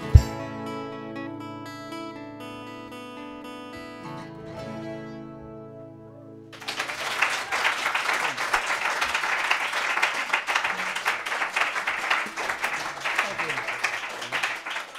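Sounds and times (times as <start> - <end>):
acoustic guitar chord ringing: 0.0 - 6.5
audience applause: 6.6 - 14.9.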